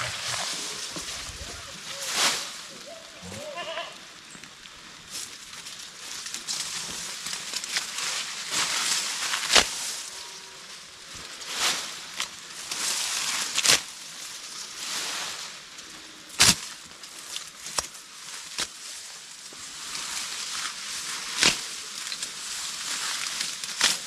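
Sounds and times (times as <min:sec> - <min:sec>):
grass leaves rustling: 0:00.0 - 0:24.0
stalks snapping: 0:09.3 - 0:09.8, 0:13.4 - 0:13.9, 0:16.4 - 0:16.7, 0:17.3 - 0:18.8, 0:21.3 - 0:22.4, 0:23.2 - 0:24.0.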